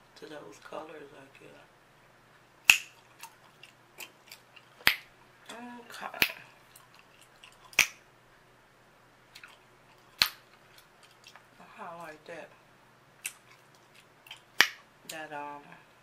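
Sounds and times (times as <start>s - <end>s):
chewing gum popping: 2.7s - 5.1s, 9.3s - 11.5s, 13.2s - 14.8s
faint wet clicks: 9.3s - 11.5s.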